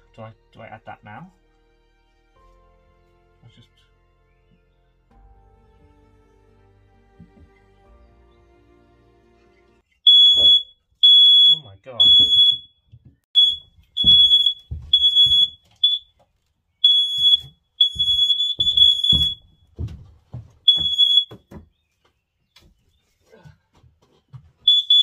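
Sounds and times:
dull thuds: 0:10.1 - 0:10.6, 0:12.0 - 0:16.0, 0:16.8 - 0:21.8
smoke alarm beeping: 0:10.1 - 0:12.7, 0:13.4 - 0:16.0, 0:16.8 - 0:19.4, 0:20.7 - 0:21.4, 0:24.7 - 0:25.0.

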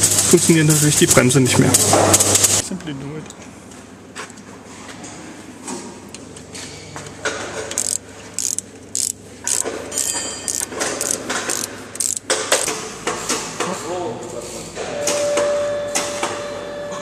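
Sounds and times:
ratchet wrench clicking: 0:07.7 - 0:12.7.

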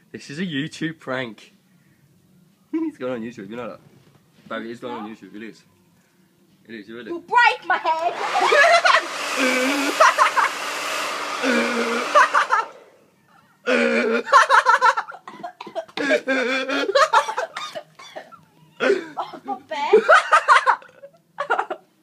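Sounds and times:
voices yelling and laughing: 0:07.4 - 0:10.7, 0:11.6 - 0:13.5
hair dryer blowing: 0:07.9 - 0:13.0.

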